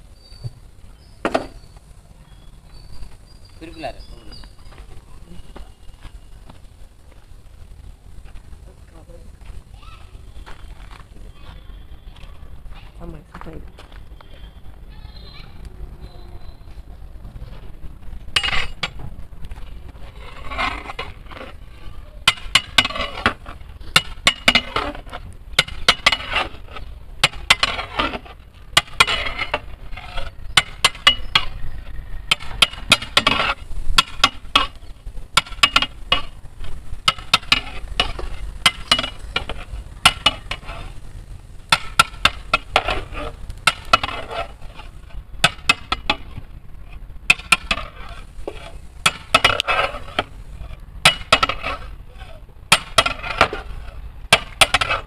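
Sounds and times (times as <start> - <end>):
metal ladle scraping pot: 18.3 - 19.1, 20.0 - 41.0, 41.7 - 55.0.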